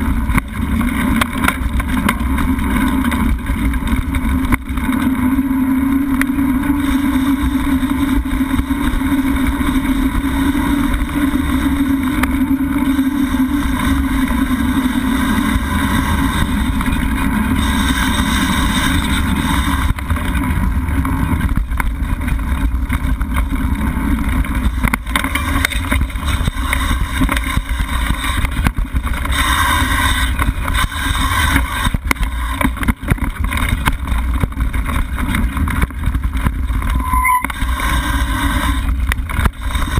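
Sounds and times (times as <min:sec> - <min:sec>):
bike knocks and rattles: 0:00.0 - 0:39.9
bike tyre rumble: 0:00.0 - 0:39.9.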